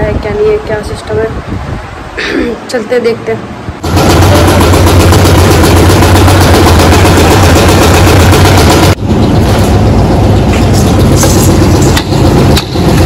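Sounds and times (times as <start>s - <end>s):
concrete mixer engine rattling: 3.8s - 13.0s
engine running: 3.8s - 13.0s.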